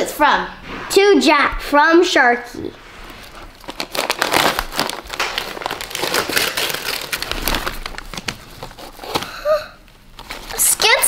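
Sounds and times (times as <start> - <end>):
foil wrapping paper crinkling: 3.7 - 9.6.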